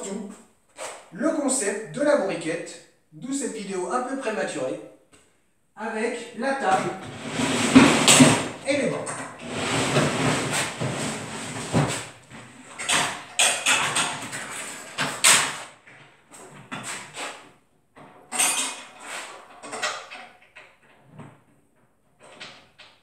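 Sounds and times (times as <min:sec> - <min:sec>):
knocks and scrapes of wood and metal: 0:06.6 - 0:23.0.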